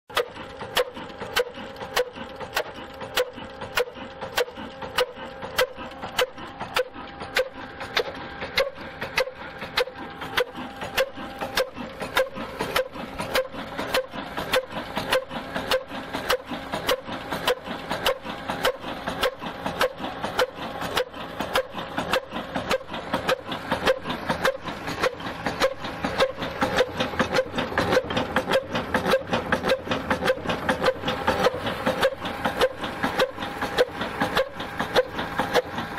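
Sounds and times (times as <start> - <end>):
stationary engine knocking: 0.1 - 35.9.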